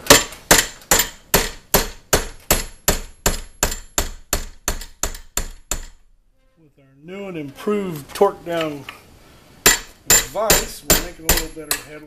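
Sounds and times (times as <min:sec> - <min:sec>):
hammer tapping a metal punch: 0:09.7 - 0:12.0.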